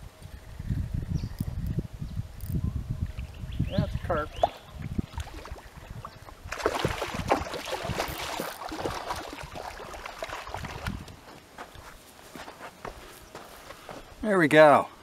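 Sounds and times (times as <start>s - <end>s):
fish splashing in water: 4.4s - 11.1s.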